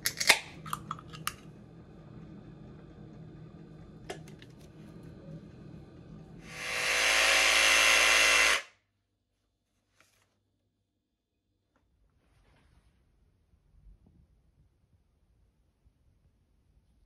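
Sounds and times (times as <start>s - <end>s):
jigsaw motor running: 6.4s - 8.7s.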